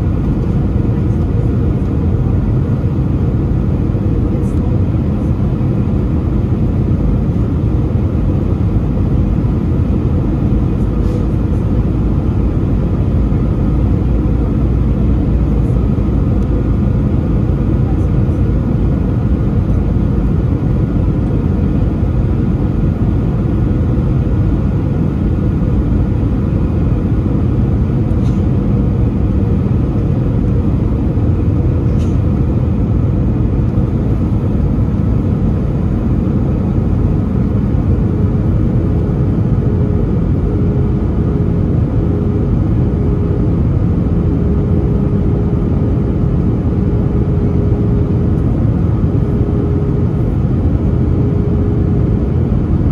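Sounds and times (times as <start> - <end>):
aircraft cabin engine rumble: 0.0 - 52.9.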